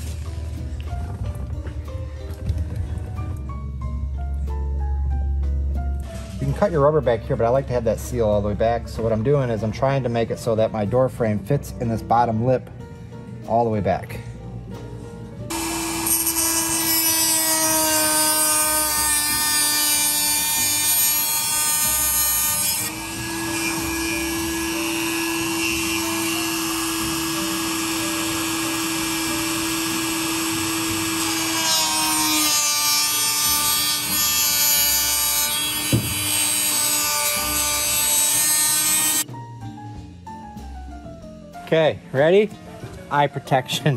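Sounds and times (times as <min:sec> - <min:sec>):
electric drill whining: 0:15.5 - 0:39.2.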